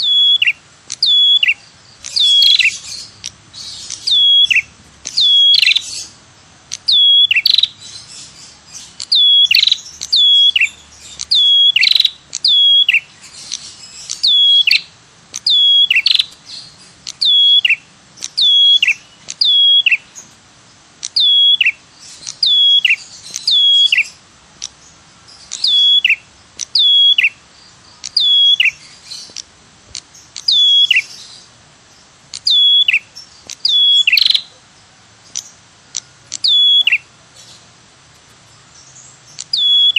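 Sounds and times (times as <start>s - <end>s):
bird calling high notes: 0.0s - 6.2s, 6.8s - 20.2s, 21.1s - 24.2s, 25.4s - 27.4s, 28.1s - 28.9s, 30.4s - 31.3s, 32.4s - 34.6s, 36.4s - 37.1s, 39.3s - 39.9s.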